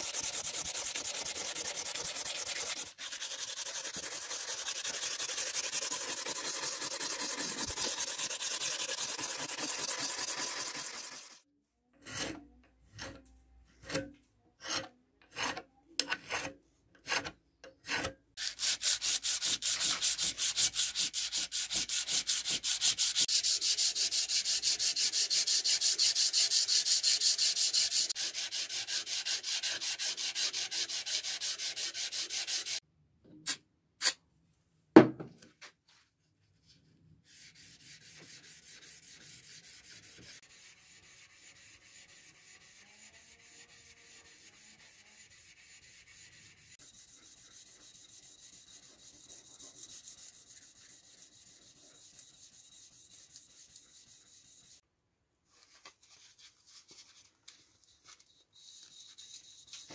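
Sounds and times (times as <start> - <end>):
blade scraping on abrasive: 0.0 - 11.4, 17.9 - 32.8.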